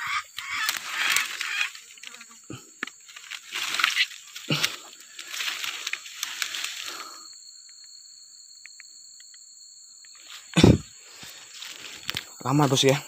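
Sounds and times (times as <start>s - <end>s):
rustling through undergrowth: 0.0s - 7.6s, 10.1s - 13.0s
faint high ticks: 5.7s - 8.0s, 8.6s - 10.3s.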